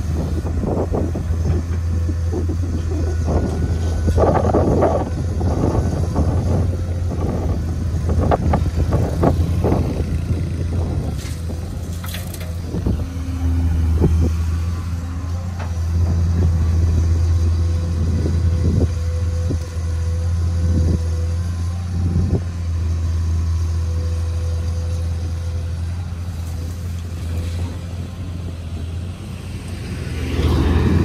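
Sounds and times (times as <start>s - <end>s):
excavator diesel engine running: 0.0s - 31.0s.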